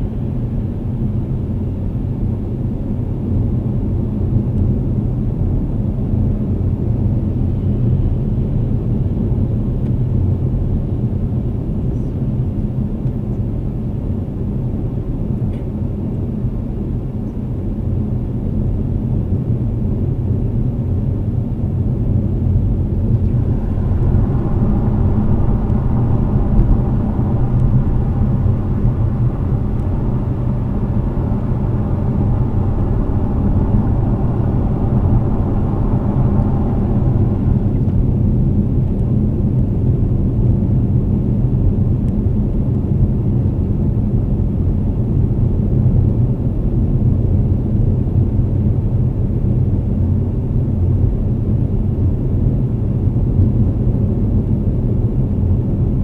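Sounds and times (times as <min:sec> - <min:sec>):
tyres and engine rumble: 0:21.7 - 0:40.3
humming tone: 0:22.1 - 0:39.6.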